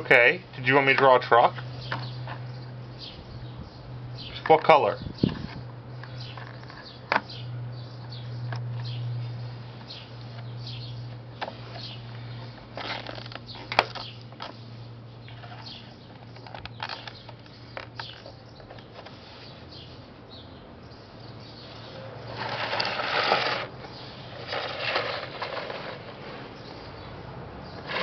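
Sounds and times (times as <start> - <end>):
chalk scraping on concrete: 21.8 - 23.7.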